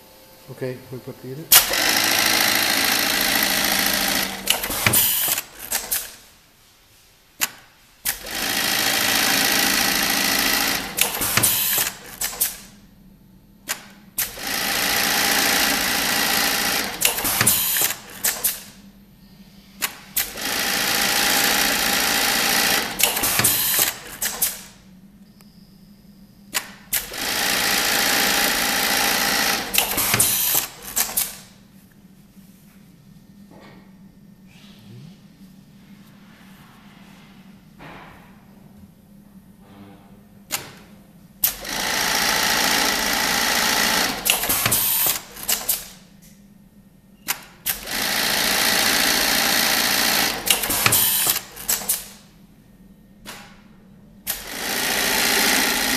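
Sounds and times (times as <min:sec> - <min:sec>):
sewing machine stitching: 0:01.5 - 0:06.2, 0:08.1 - 0:12.5, 0:14.2 - 0:18.6, 0:19.8 - 0:24.6, 0:26.6 - 0:31.4, 0:41.4 - 0:45.8, 0:47.7 - 0:52.0, 0:54.3 - 0:55.9.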